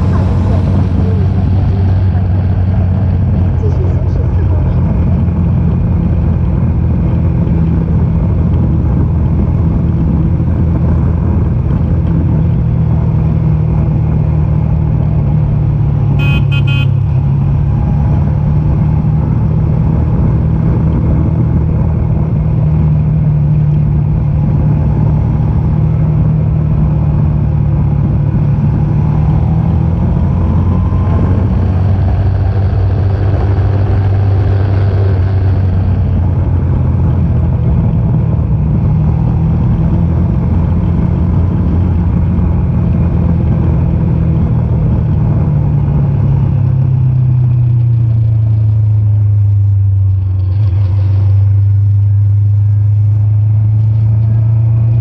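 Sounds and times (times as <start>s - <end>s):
motorcycle engine running: 0.0s - 55.0s
horn toot: 16.2s - 17.1s.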